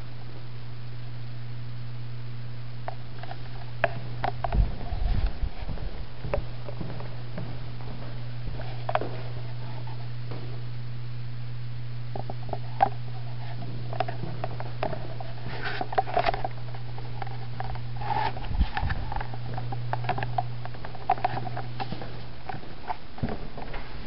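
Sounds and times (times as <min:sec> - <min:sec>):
steady low hum: 0:00.0 - 0:24.0
footsteps on hard floor: 0:03.9 - 0:10.6, 0:13.4 - 0:16.4, 0:21.1 - 0:24.0.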